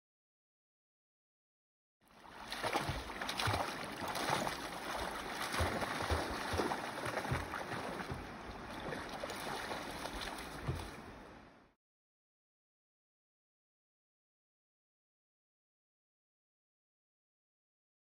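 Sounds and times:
water splashing from swimming dog: 2.1 - 11.2.

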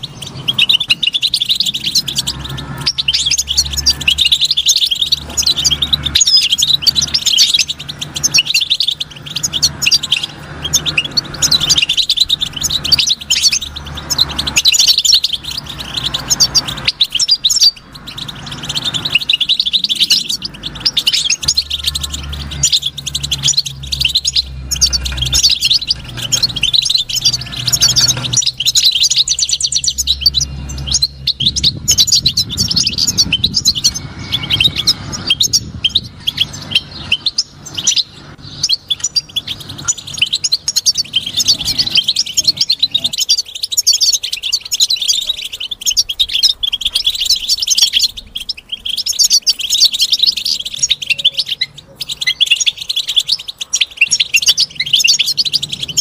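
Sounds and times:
goldfinch chirping and twittering: 0.0 - 56.0.

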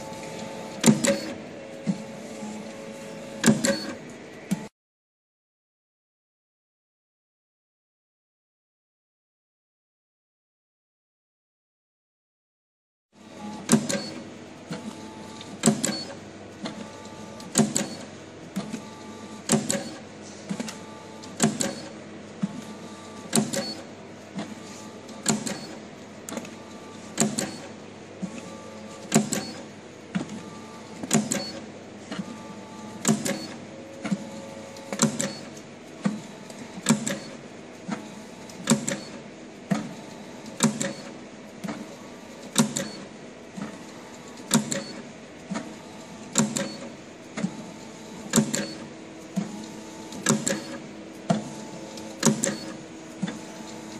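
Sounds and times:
steady machine hum: 0.0 - 4.7.

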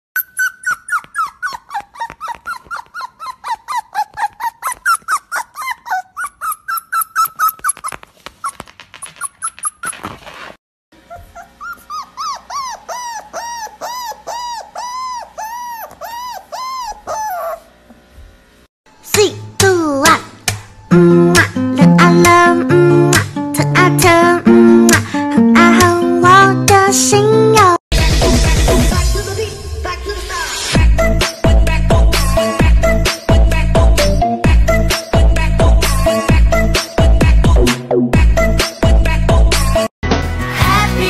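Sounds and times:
small dog yipping: 0.2 - 17.7
dog whining: 0.2 - 17.8.

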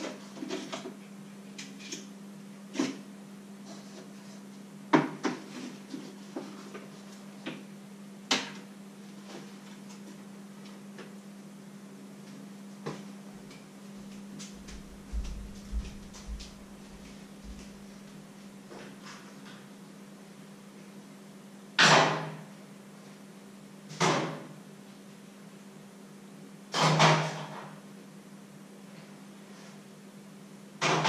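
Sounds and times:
steady low hum: 0.0 - 21.8.

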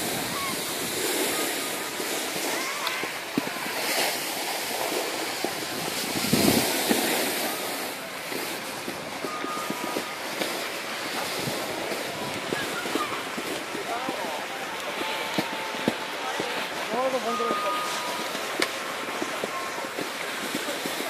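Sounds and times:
wind on microphone: 0.0 - 16.8
snowboards scraping snow: 0.0 - 21.0.

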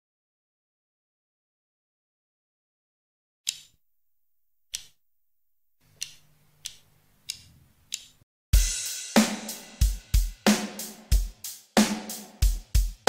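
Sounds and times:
count-in clicks: 3.5 - 3.8, 4.7 - 5.0, 6.0 - 8.2
rock backing track: 8.6 - 13.0.

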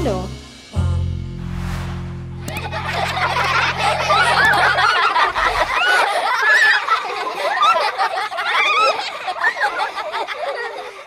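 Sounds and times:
low musical hum: 0.8 - 5.8
children laughing: 2.4 - 11.0.

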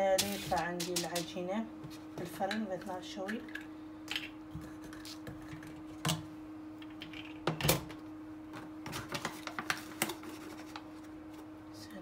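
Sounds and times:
kitchen items knocking and clicking: 0.0 - 1.4
steady low hum: 0.0 - 12.0.

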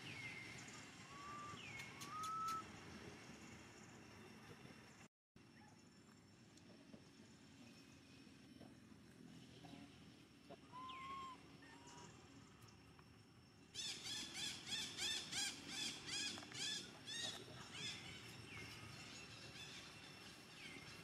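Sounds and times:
animal squealing calls: 10.5 - 12.2.

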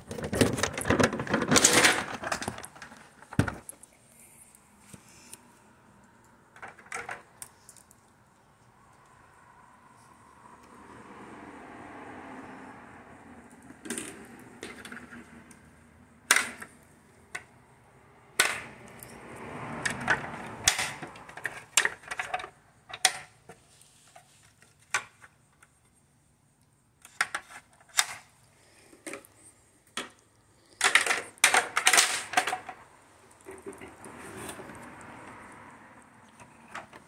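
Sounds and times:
hard plastic parts clicking: 0.0 - 3.8, 30.0 - 32.8.

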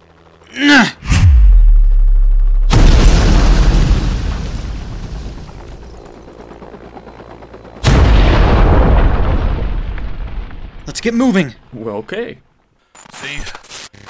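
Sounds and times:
deep low rumble: 1.0 - 5.9
explosion blasts: 1.0 - 5.9, 7.8 - 11.0.

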